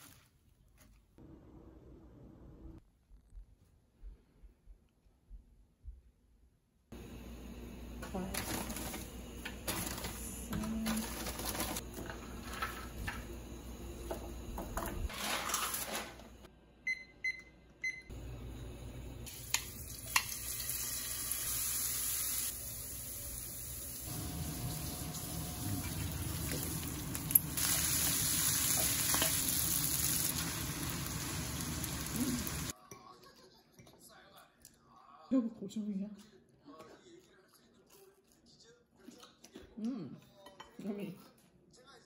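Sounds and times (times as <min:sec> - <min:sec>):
electronic appliance beeps: 0:16.8 - 0:18.3
water boiling in pots: 0:21.8 - 0:32.8.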